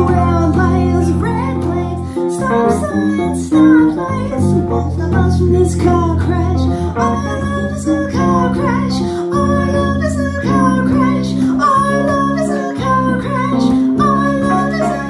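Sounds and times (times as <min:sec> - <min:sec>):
electric bass line: 0:00.0 - 0:15.0
keyboard accompaniment: 0:00.0 - 0:15.0
woman singing: 0:00.0 - 0:15.0.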